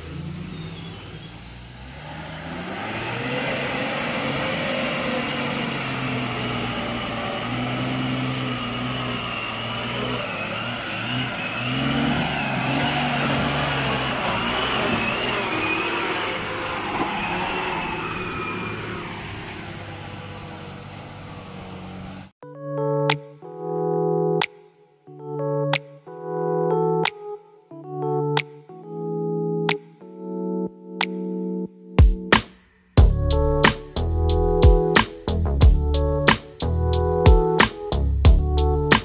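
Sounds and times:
diesel truck engine under load: 0.0 - 22.3.

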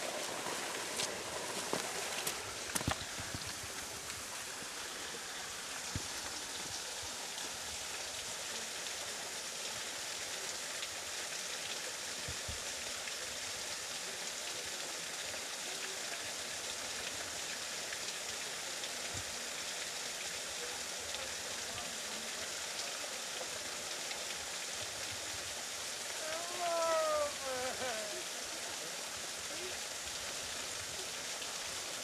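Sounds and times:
water splashing down rock face: 0.0 - 7.6, 24.8 - 32.0.

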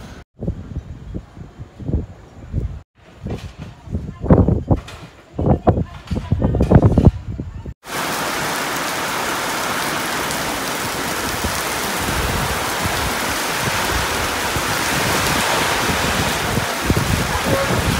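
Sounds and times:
heavy rain pouring: 7.8 - 17.9.

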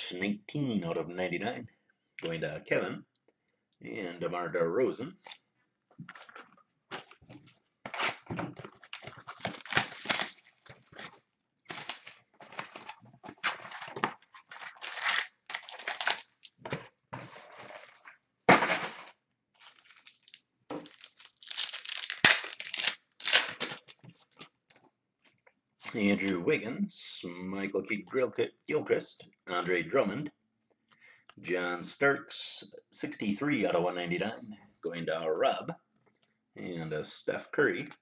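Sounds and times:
cardboard and foil wrapper crinkling: 6.2 - 18.0, 18.7 - 24.5.

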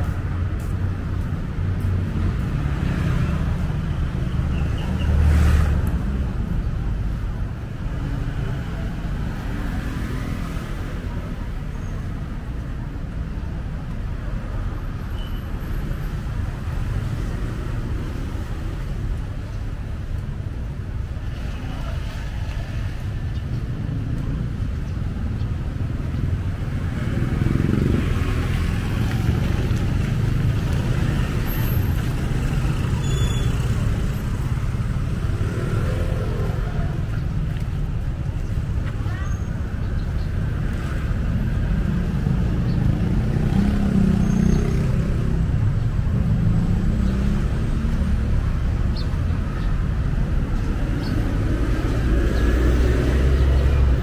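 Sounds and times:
road traffic noise: 0.0 - 54.0.

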